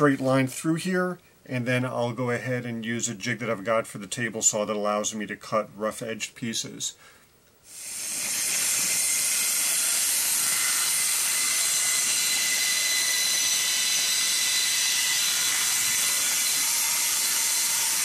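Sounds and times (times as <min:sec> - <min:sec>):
faint high whine: 0:00.0 - 0:18.0
workshop machine hissing: 0:07.6 - 0:18.0.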